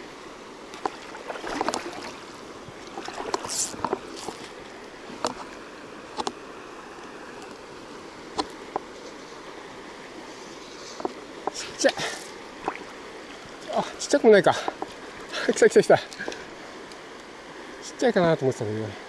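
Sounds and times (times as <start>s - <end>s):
shallow river rushing: 0.0s - 19.0s
fly line clicks and swish: 0.7s - 2.1s, 2.8s - 4.6s.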